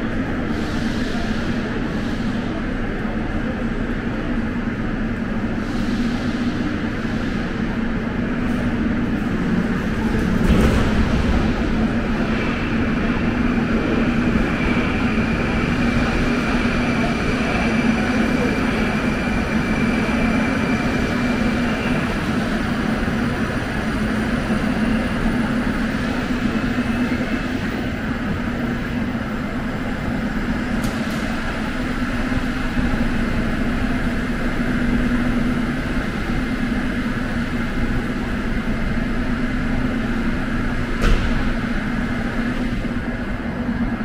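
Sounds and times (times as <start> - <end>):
train equipment humming: 0.0 - 44.0.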